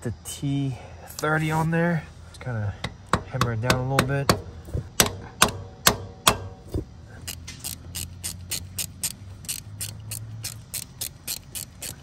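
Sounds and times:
hand ratchet clicking: 0:07.2 - 0:12.0.

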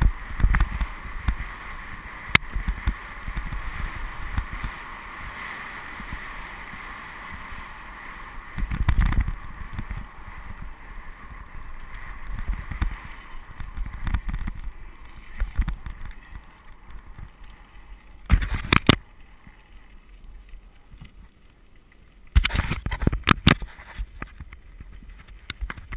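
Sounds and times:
bike rattling over bumps: 0:00.0 - 0:21.4
bike tyres rumbling on dirt: 0:00.0 - 0:25.9.

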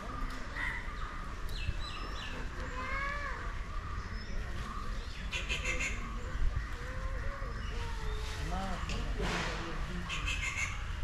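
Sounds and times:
birds chirping: 0:00.0 - 0:09.2, 0:09.8 - 0:11.0
harsh rattling bird call: 0:10.1 - 0:10.8.

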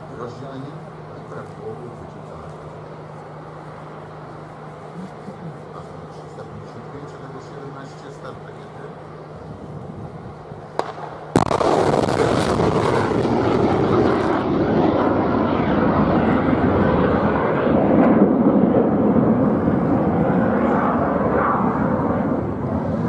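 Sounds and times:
missile launch blast: 0:10.8 - 0:19.4.

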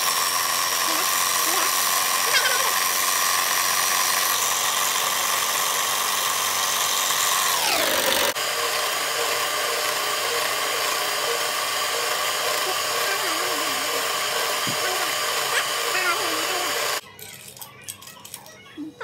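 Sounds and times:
electric hand mixer whining: 0:00.0 - 0:17.0.

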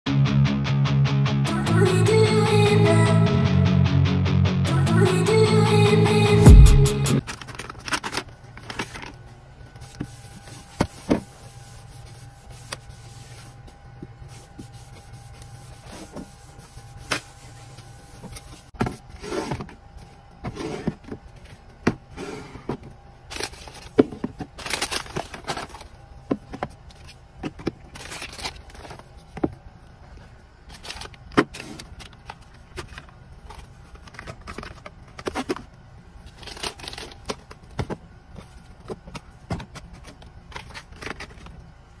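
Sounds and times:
packaging rustling: 0:23.3 - 0:25.9, 0:27.8 - 0:29.2.

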